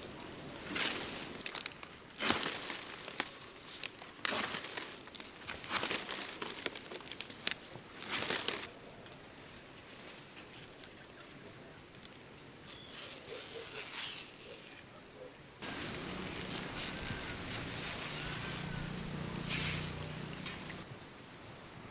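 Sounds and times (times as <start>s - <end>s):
palm fronds ripping: 0.0s - 8.7s, 12.0s - 14.8s, 15.6s - 20.8s.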